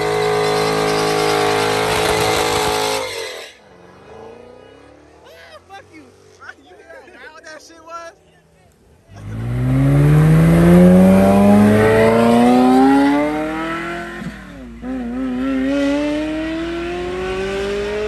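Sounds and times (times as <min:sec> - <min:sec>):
sports car engine accelerating: 0:09.1 - 0:18.0.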